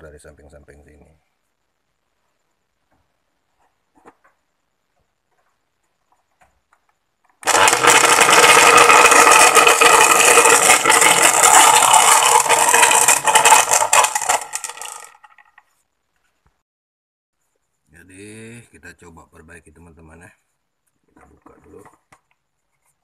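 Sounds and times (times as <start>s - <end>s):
blender motor running: 7.4s - 15.1s.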